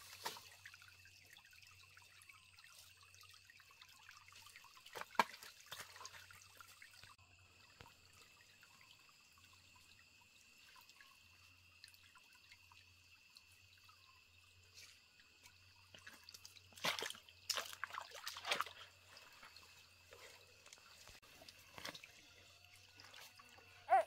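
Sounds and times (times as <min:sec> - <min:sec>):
stream trickling: 0:00.0 - 0:24.0.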